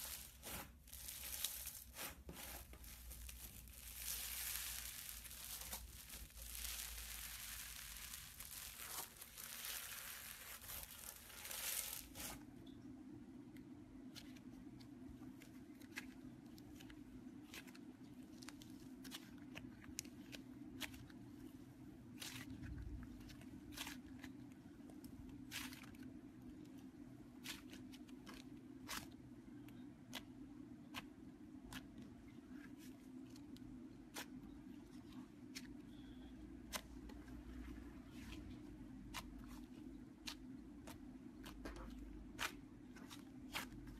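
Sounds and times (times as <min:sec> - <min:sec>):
slime crackling and crunching: 0:00.0 - 0:12.4, 0:22.1 - 0:26.1, 0:30.9 - 0:43.9
faint low hum: 0:00.0 - 0:43.9.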